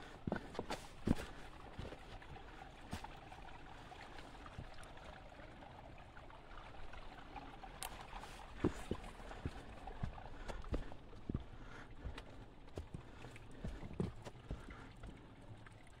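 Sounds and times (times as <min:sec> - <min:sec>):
footsteps on trail: 0:00.0 - 0:03.2, 0:08.1 - 0:15.2
small stream running: 0:00.0 - 0:16.0.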